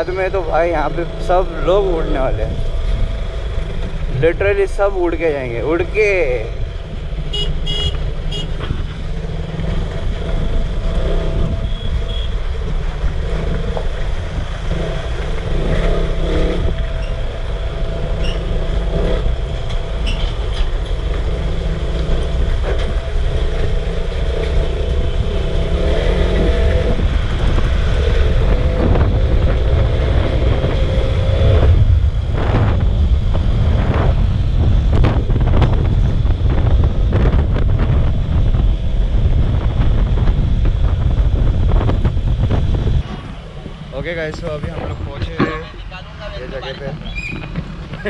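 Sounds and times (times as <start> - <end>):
muffled motorcycle engine rumble: 0.0 - 48.0.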